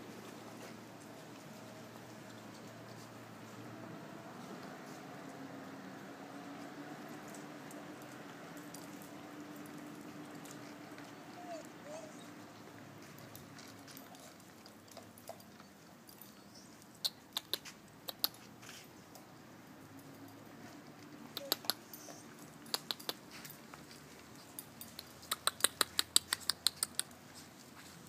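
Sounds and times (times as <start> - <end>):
dog claws clicking on stone: 17.0 - 18.4, 21.3 - 21.8, 22.6 - 23.2, 24.6 - 27.2.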